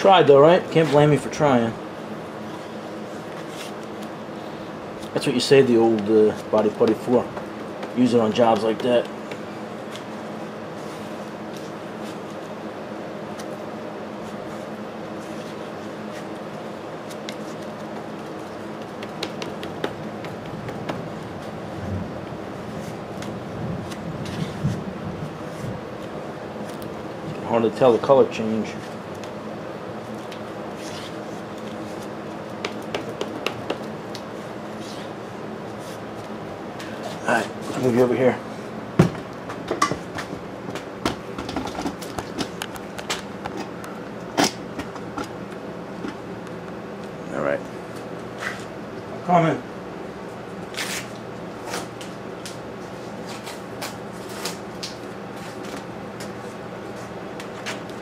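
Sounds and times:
steady low hum: 0.0 - 58.0
scrapes and rustles of hand work: 2.4 - 5.1, 14.2 - 18.5, 23.8 - 25.8, 30.0 - 32.1, 34.3 - 38.1
spreader scraping body filler: 30.0 - 33.7, 34.3 - 38.6.

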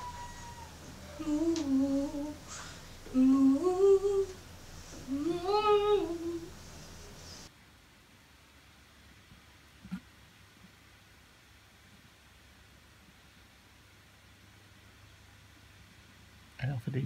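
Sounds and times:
woman humming a tune: 1.1 - 4.4, 5.1 - 6.5.

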